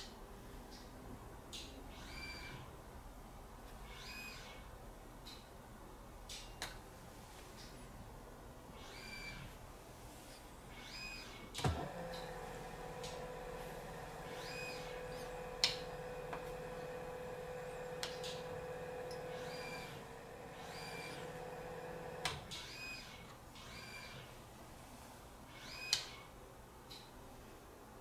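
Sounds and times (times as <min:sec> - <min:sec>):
motor humming: 0:10.7 - 0:23.1.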